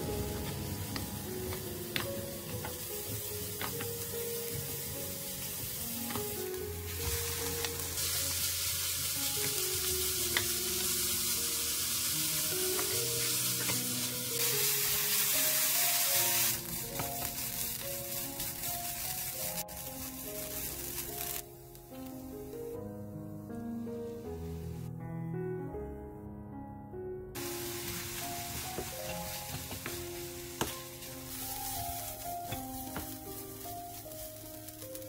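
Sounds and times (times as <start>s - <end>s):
food sizzling in oil: 0.0s - 21.8s, 27.4s - 35.0s
background music: 0.0s - 35.0s
wooden spatulas scraping wok: 27.9s - 33.3s.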